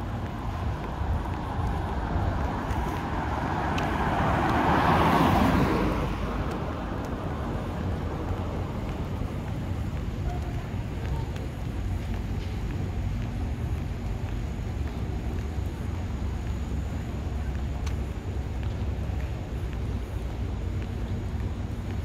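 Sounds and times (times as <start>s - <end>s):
traffic rumble: 0.0s - 22.0s
vehicle passing by: 1.4s - 8.7s.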